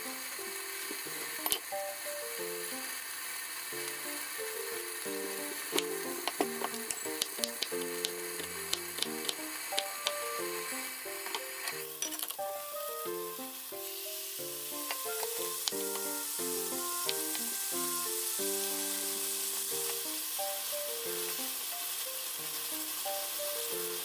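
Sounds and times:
meat sizzling in a frying pan: 0.0 - 24.0
light melodic background music: 3.7 - 24.0
sharp clicks: 5.7 - 10.2.

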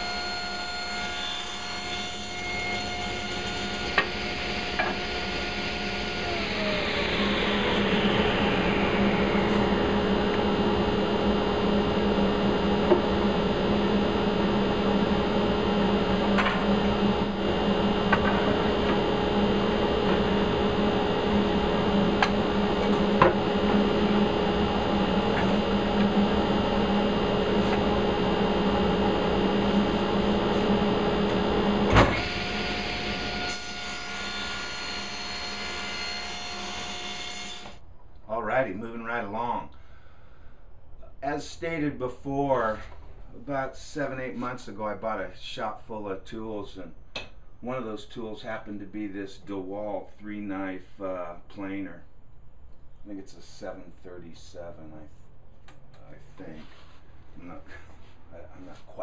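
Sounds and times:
shop machine droning: 0.0 - 37.8.

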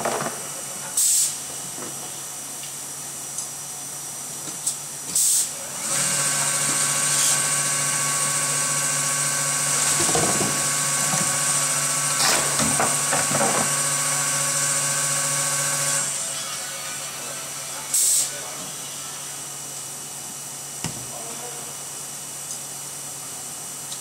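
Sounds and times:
short hiss of air: 1.0 - 1.5, 5.2 - 5.6, 18.0 - 18.4.

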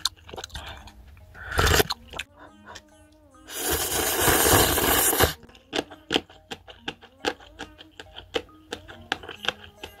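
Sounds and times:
wet chewing: 0.0 - 2.3, 5.5 - 10.0
plinky background music: 0.0 - 10.0
noodle slurp: 3.5 - 5.4.

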